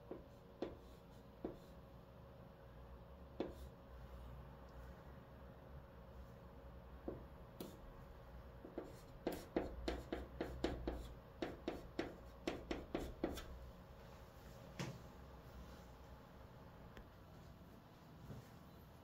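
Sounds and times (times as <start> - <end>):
chalk tapping and scratching: 0.0 - 1.8, 3.4 - 3.8, 7.1 - 7.9, 8.6 - 13.6.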